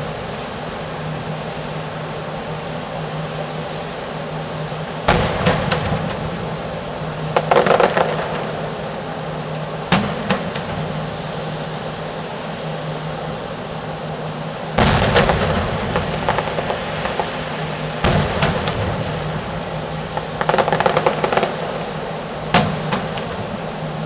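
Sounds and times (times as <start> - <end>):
fireworks crackling pops: 5.1 - 8.9, 9.9 - 11.2, 14.8 - 24.0
fireworks booming: 5.1 - 11.4, 14.8 - 24.0.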